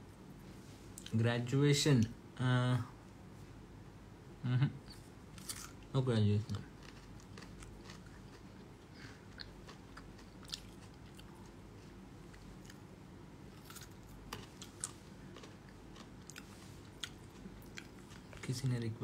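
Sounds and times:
person chewing and biting: 0:05.4 - 0:05.9, 0:06.5 - 0:12.9, 0:13.5 - 0:18.5.

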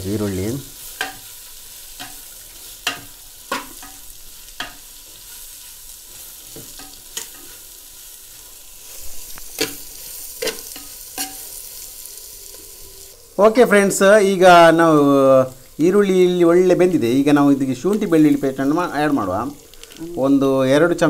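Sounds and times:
onions sizzling in oil: 0:00.0 - 0:21.0
spoon clinking and scraping pot: 0:09.6 - 0:11.6.

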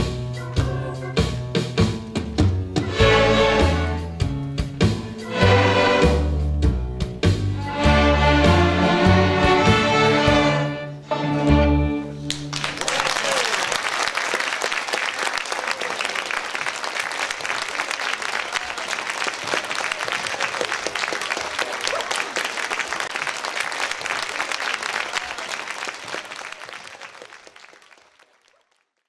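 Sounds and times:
audience applauding: 0:12.2 - 0:29.0.

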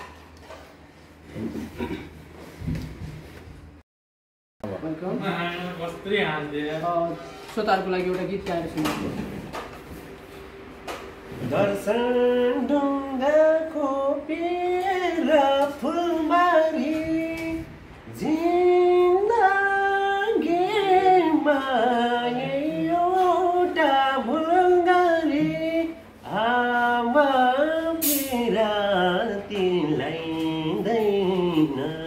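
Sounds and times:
man singing unaccompanied: 0:11.4 - 0:32.0.

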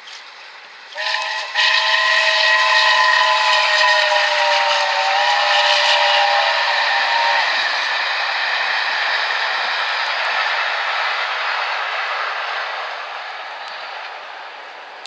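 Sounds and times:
rush of passing train: 0:00.0 - 0:15.0
steam locomotive whistle: 0:00.9 - 0:10.4.

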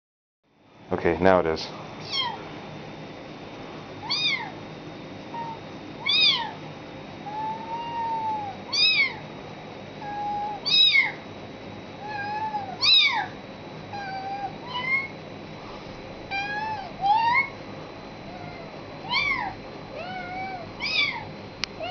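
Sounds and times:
person imitating kitten mews: 0:07.3 - 0:09.2, 0:10.0 - 0:11.1, 0:14.0 - 0:15.1, 0:16.3 - 0:17.5.

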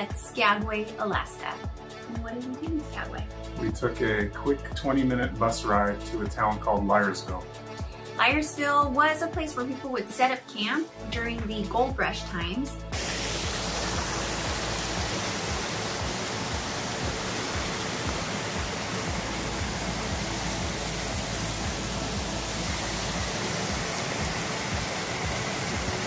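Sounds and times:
creek water rushing over rocks: 0:13.0 - 0:26.0.

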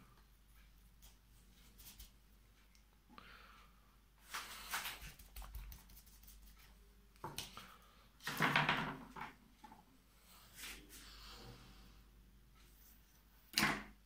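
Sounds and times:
scratchy rustling and scraping: 0:01.0 - 0:02.2, 0:04.2 - 0:06.8.

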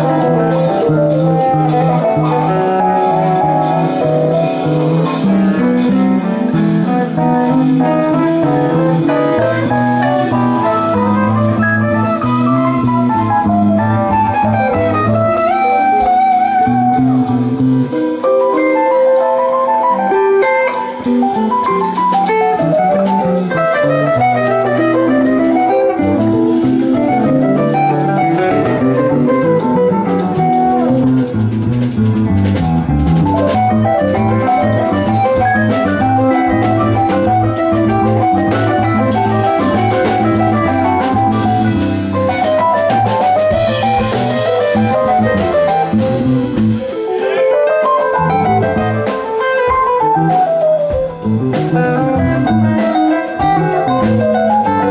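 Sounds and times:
electric guitar lines: 0:00.0 - 0:54.9
rock band playing instrumental: 0:00.0 - 0:54.9.

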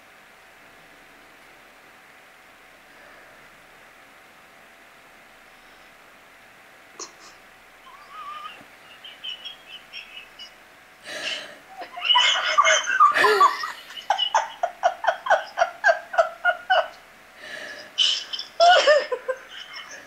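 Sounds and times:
woman laughing: 0:07.9 - 0:20.0.

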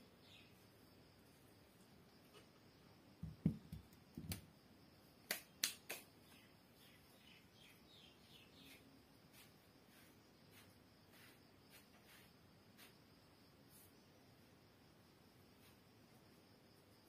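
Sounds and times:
small birds chirping: 0:00.0 - 0:00.8, 0:05.5 - 0:11.4
plastic bottle knocking on glass: 0:03.2 - 0:03.9.

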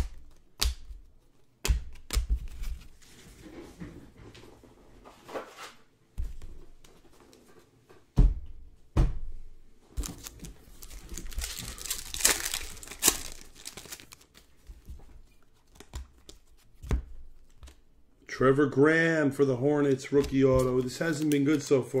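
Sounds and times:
wrapper crinkling and tearing: 0:10.0 - 0:14.5.

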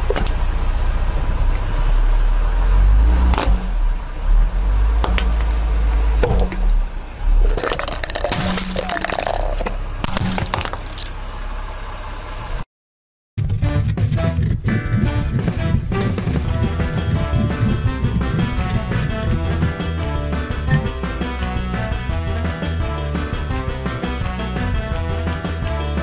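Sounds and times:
car engine rumble: 0:00.0 - 0:12.7, 0:13.4 - 0:26.0
tyre crushing plastic cups: 0:06.2 - 0:11.3
crackle of snapping shards: 0:06.2 - 0:11.4.

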